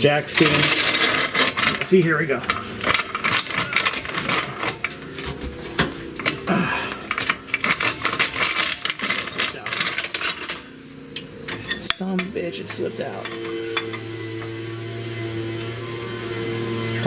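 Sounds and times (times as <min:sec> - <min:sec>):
floor jack clicking and clanking: 0:00.0 - 0:10.7.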